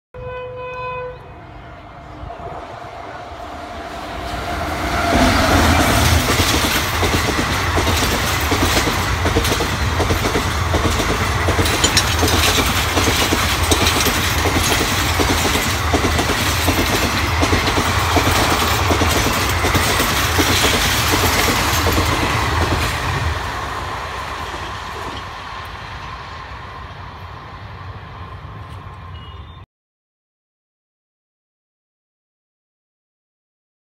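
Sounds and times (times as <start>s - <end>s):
train horn: 0.2s - 2.4s, 3.1s - 6.3s, 29.1s - 29.6s
train rolling noise: 1.2s - 29.4s
wheels clacking over rail joints: 5.8s - 26.1s.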